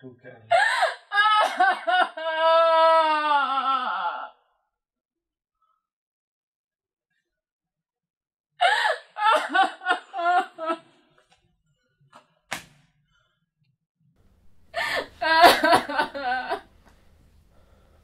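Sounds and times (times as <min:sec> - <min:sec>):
man sobbing: 0:00.5 - 0:04.2, 0:08.6 - 0:10.9, 0:14.8 - 0:16.7
sharp knock: 0:12.5 - 0:12.9.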